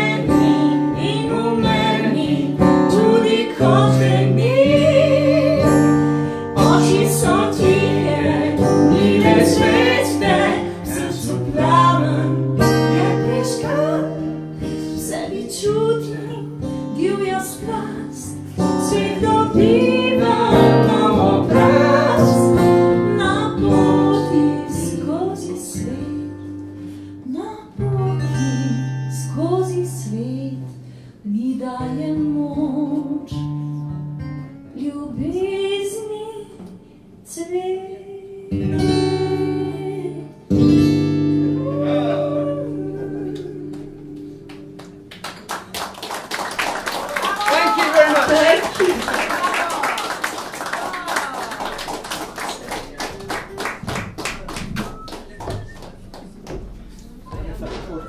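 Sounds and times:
woman singing: 0.0 - 14.3, 14.9 - 26.3, 27.2 - 33.4, 34.8 - 36.7, 37.3 - 40.5, 41.6 - 44.2
strummed acoustic guitar: 0.0 - 30.1, 38.5 - 45.1.

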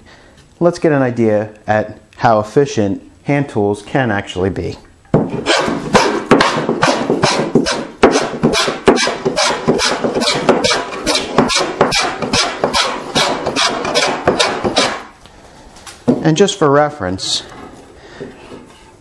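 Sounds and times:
hand plane rasping on wood: 5.4 - 15.1.

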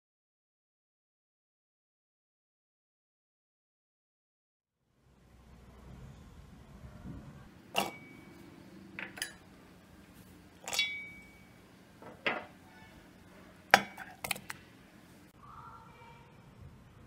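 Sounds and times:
metal blender jar clinking: 7.7 - 8.4, 9.0 - 9.5, 10.6 - 12.6, 13.7 - 14.6.

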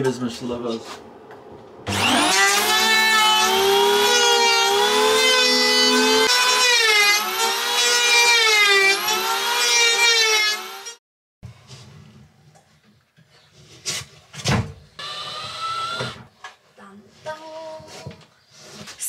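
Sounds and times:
power tool whining into wood: 1.9 - 11.0, 15.0 - 16.3.

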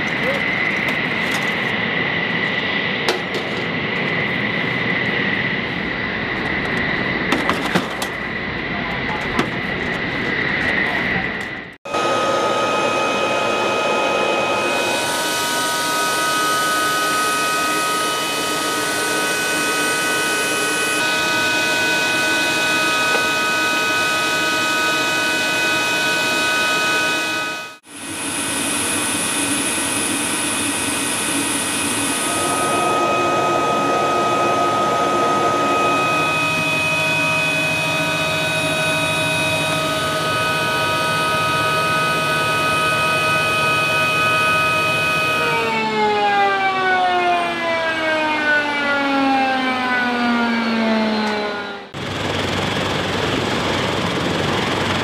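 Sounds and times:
helicopter turbines whining: 0.0 - 55.0
high-pitched tones: 11.9 - 46.0.

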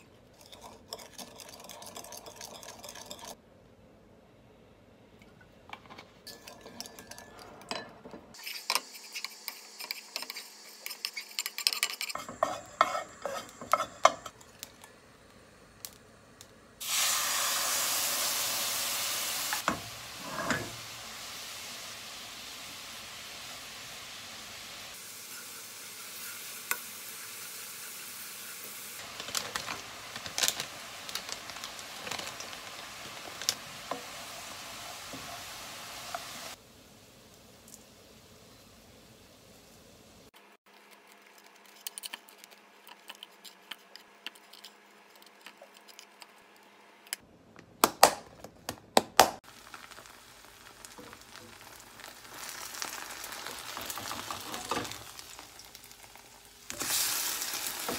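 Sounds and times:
sauce sizzling in wok: 8.3 - 40.4, 49.4 - 57.9
wooden spoon scraping pan: 8.4 - 14.3.

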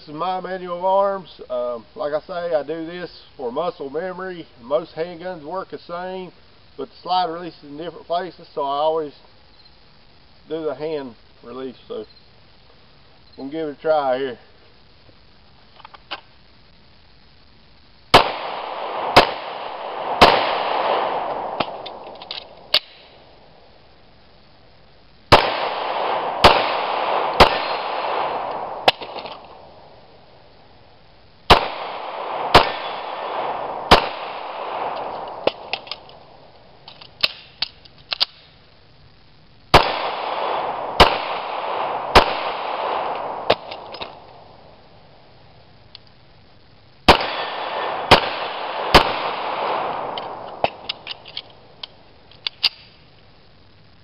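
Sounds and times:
pistol shots echoing: 18.2 - 23.1, 25.3 - 29.7, 31.5 - 36.3, 39.7 - 44.5, 47.1 - 51.2
magazine change clicks: 21.6 - 23.0, 34.8 - 36.2, 36.9 - 38.5, 49.0 - 53.0.

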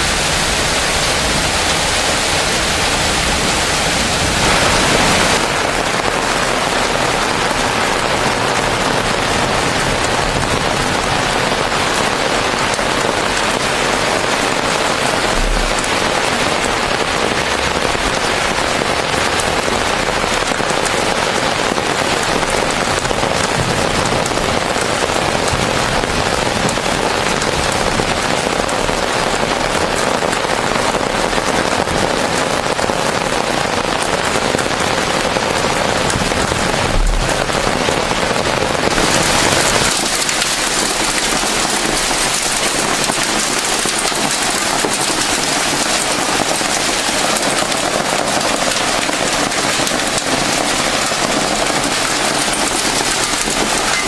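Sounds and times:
heavy rain on pavement: 0.0 - 54.0.

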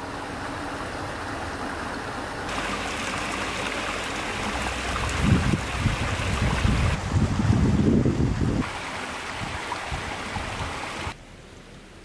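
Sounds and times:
creek running over rocks: 0.0 - 12.0
wind buffeting microphone: 4.6 - 11.1.

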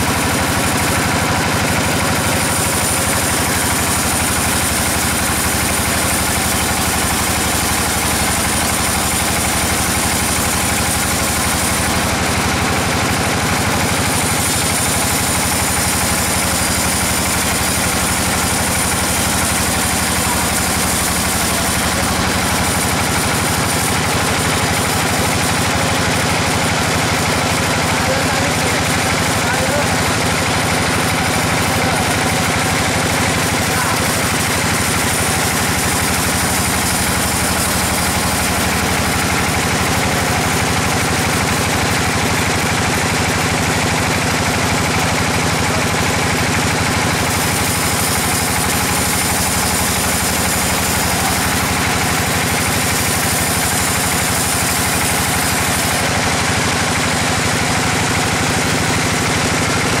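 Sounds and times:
band sawmill sawing log: 0.0 - 60.0.

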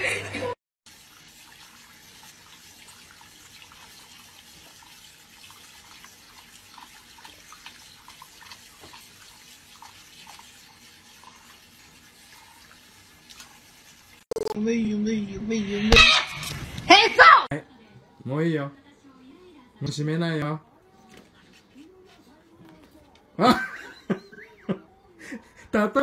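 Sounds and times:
tap water running into sink: 0.9 - 14.2.

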